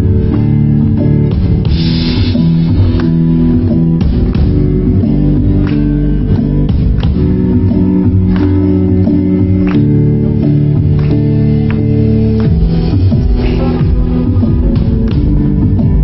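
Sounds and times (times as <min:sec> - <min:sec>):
live band playing: 0:00.0 - 0:16.0
drum hits: 0:01.3 - 0:03.1, 0:12.4 - 0:16.0.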